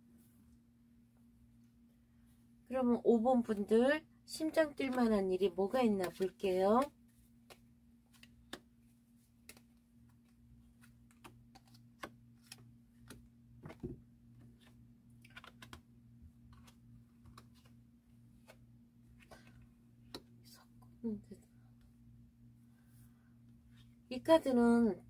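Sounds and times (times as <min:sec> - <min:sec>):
low steady hum: 0:00.0 - 0:25.0
cards being shuffled: 0:04.7 - 0:20.3
cards laid on cloth table: 0:06.0 - 0:20.4.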